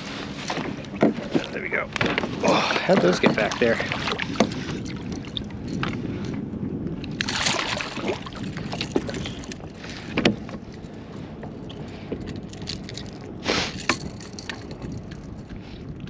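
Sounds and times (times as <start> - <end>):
knocks and clicks on kayak hull: 0.5 - 4.6, 10.0 - 10.7.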